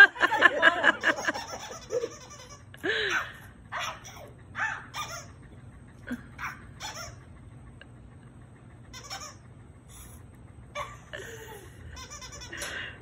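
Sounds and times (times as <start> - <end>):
laughter: 0.0 - 2.9, 10.8 - 13.0.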